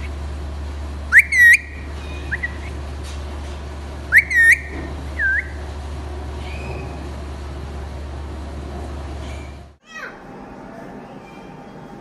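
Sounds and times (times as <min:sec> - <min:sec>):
parakeet whistling: 0:01.1 - 0:02.8, 0:04.1 - 0:05.6.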